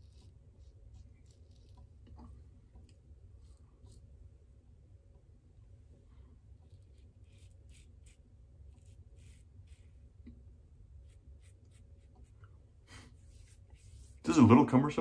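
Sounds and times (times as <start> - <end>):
razor scraping stubble: 0.0 - 2.3, 6.6 - 10.4, 11.0 - 12.4.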